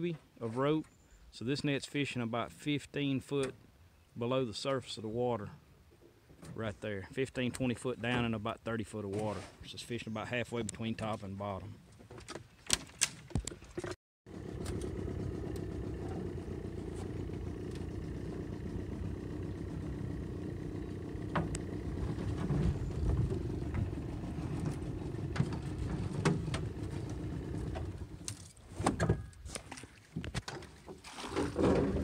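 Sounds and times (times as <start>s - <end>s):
steady low rumble: 14.3s - 28.2s
net hauled into boat: 20.5s - 32.0s.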